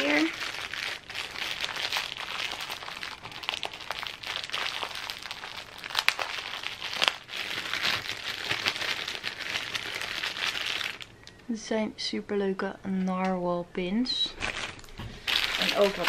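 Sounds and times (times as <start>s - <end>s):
plastic bags crinkling: 0.0s - 11.2s, 14.3s - 16.0s.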